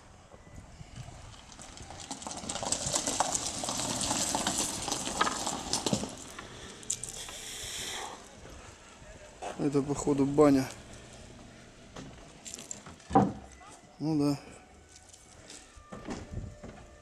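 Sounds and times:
footsteps crunching on pebbles: 0:01.7 - 0:07.5.

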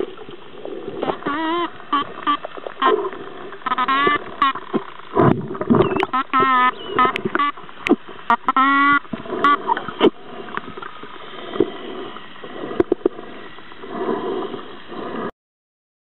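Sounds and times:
underwater hiss: 0:09.1 - 0:15.3.

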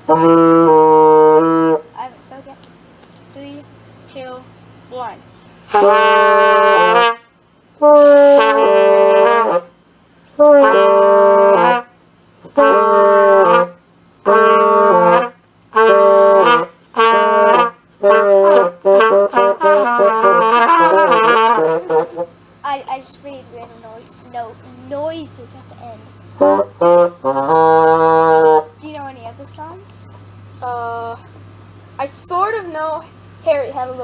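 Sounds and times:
cornet playing: 0:00.0 - 0:01.9, 0:05.7 - 0:09.8, 0:10.4 - 0:22.3, 0:25.8 - 0:28.8.

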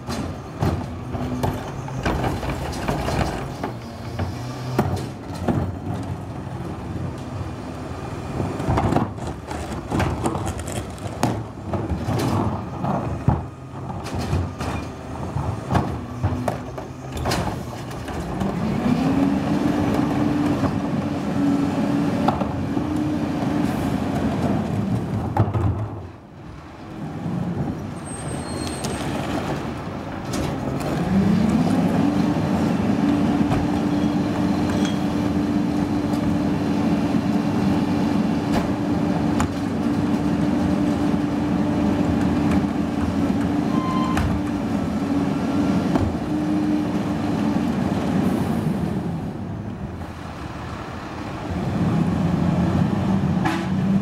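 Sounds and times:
garbage truck engine revving: 0:06.5 - 0:25.2, 0:29.2 - 0:54.0
plastic carts knocking against hopper: 0:24.3 - 0:26.0.

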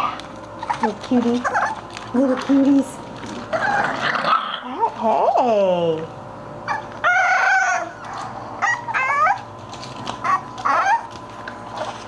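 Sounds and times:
puppies whining: 0:00.0 - 0:01.9, 0:02.8 - 0:04.8, 0:06.6 - 0:12.0.

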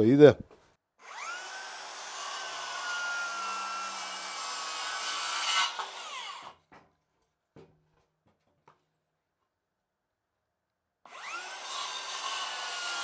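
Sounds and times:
saw blade rasping through wood: 0:01.2 - 0:06.6, 0:11.2 - 0:13.0.

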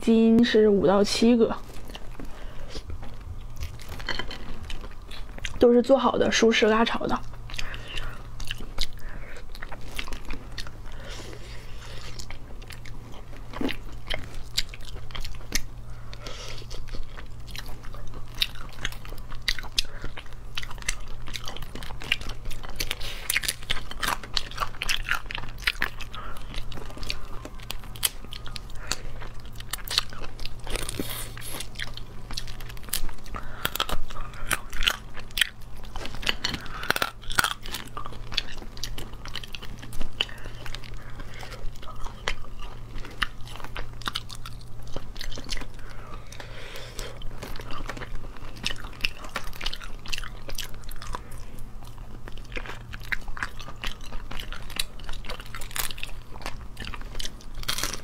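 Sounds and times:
chewing: 0:01.4 - 0:05.7, 0:06.6 - 0:58.0
shells cracking and crunching: 0:16.8 - 0:46.5, 0:47.2 - 0:58.0.

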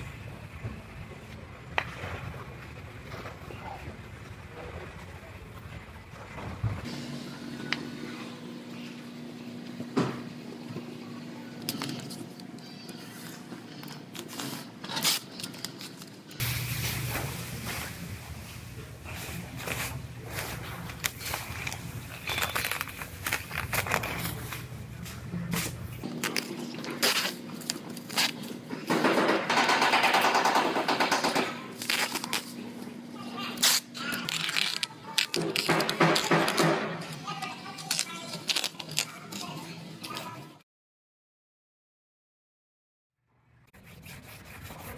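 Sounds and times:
masking tape ripping off roll: 0:14.2 - 0:16.1, 0:20.9 - 0:24.5, 0:25.6 - 0:28.5, 0:31.8 - 0:32.5, 0:33.6 - 0:36.6, 0:37.8 - 0:39.2
plastic sheeting crackling: 0:19.1 - 0:28.6.

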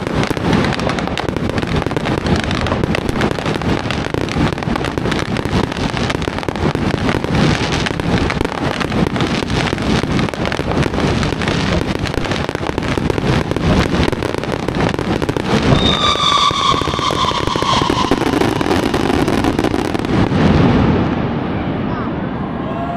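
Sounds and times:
fireworks crackling and banging: 0:00.0 - 0:21.4
high whistling firework: 0:00.0 - 0:21.5.

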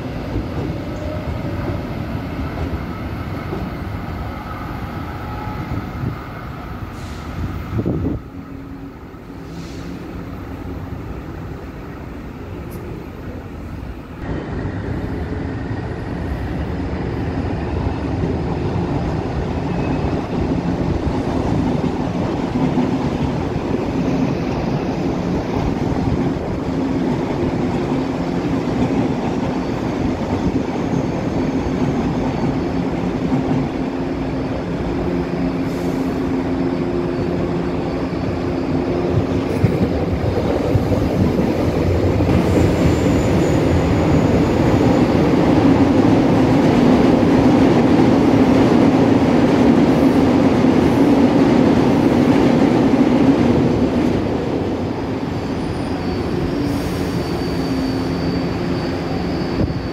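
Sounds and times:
train passing platform: 0:00.0 - 0:59.9
train rumble: 0:00.0 - 0:59.9
faint high squeal: 0:04.1 - 0:08.8, 0:42.4 - 0:45.3, 0:55.3 - 0:59.9.

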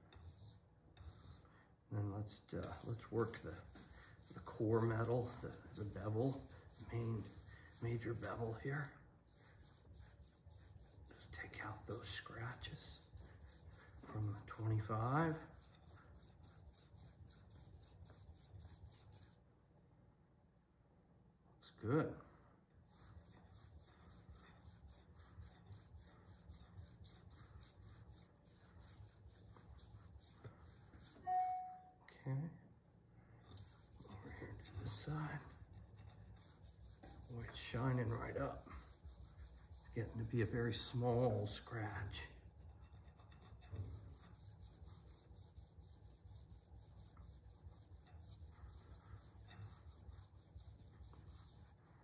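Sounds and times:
knife rubbing on sharpening stone: 0:00.0 - 0:01.4, 0:22.9 - 0:31.9, 0:33.4 - 0:40.2, 0:42.1 - 0:51.8.

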